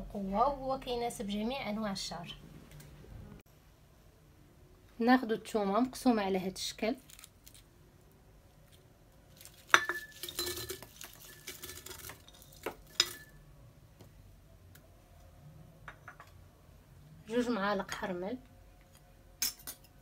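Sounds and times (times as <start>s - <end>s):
garlic clattering into glass jar: 9.6s - 13.4s
glassy clinks: 9.7s - 13.4s.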